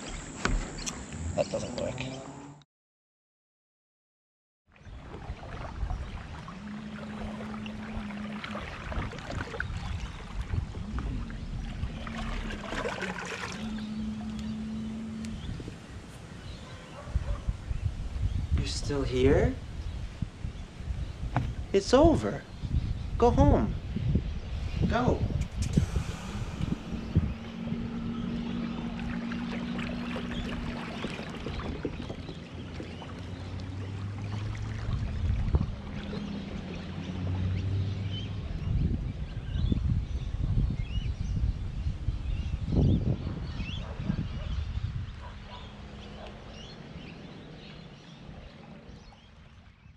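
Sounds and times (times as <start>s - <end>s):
water noise: 4.7s - 40.0s, 43.2s - 49.9s
wind noise: 5.2s - 32.9s, 34.7s - 36.1s, 38.3s - 45.6s
low steady hum: 25.1s - 31.5s.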